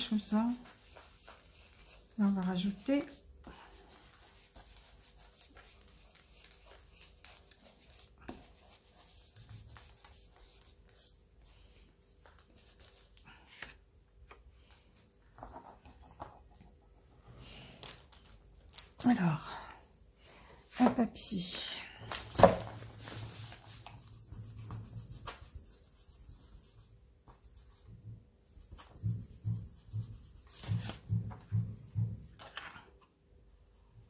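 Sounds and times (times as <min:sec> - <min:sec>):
foam tool dabbing on paper: 0:00.0 - 0:11.1
paper cards being handled: 0:00.0 - 0:16.4, 0:22.0 - 0:25.5.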